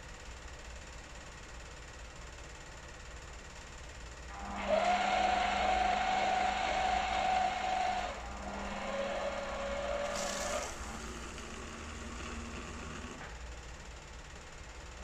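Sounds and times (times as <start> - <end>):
coffee machine whirring: 4.3 - 14.2.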